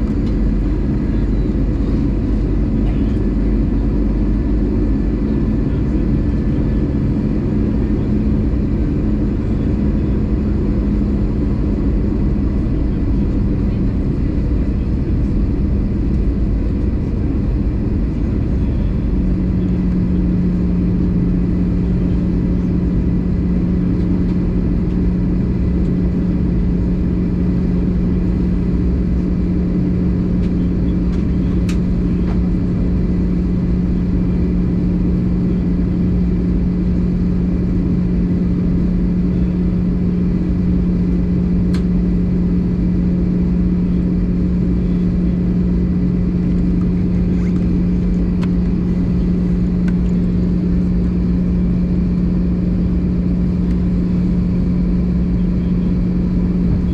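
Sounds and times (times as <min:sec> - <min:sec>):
aircraft engines and rushing air: 0:00.0 - 0:56.9
steady low hum: 0:00.0 - 0:56.9.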